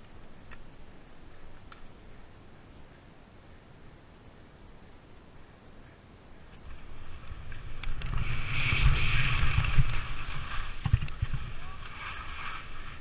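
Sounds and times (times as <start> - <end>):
wind buffeting microphone: 6.5 - 13.0
skis scraping on snow: 6.6 - 13.0.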